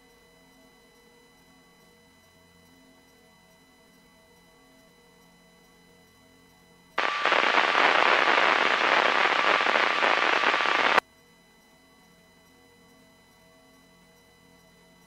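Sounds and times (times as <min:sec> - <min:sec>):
radio static crackling: 0:07.0 - 0:11.0.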